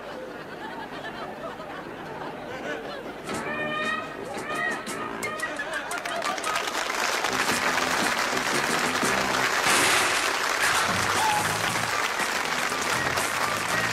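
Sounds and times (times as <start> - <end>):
audience applauding: 5.4 - 13.9
theme music: 7.2 - 13.9.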